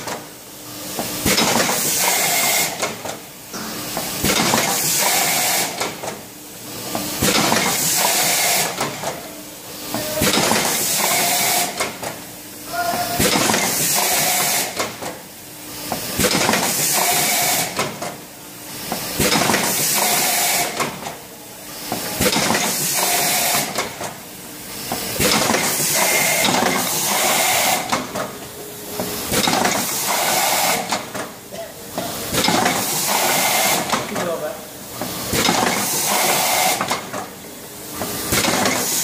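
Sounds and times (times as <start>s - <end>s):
machine clicks and metallic clatter: 16.2s - 18.2s, 29.3s - 31.3s, 38.3s - 39.0s.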